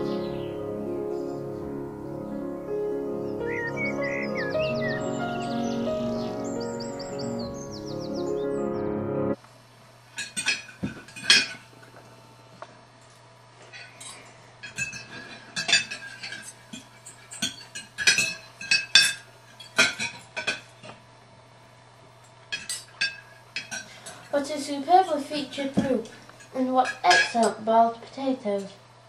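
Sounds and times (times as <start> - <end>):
cutlery clinking on plates: 10.2 - 11.7, 13.7 - 21.0, 22.5 - 24.3, 25.8 - 27.6.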